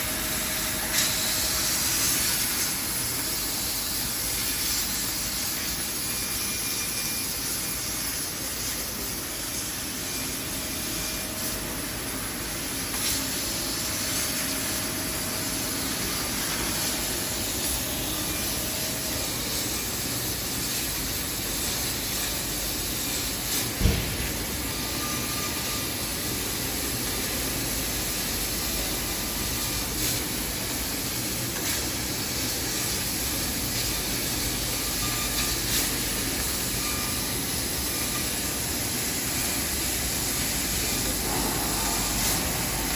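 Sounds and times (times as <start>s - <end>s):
laser cutter gas hiss: 0.0s - 42.9s
sharp knock: 23.8s - 24.4s.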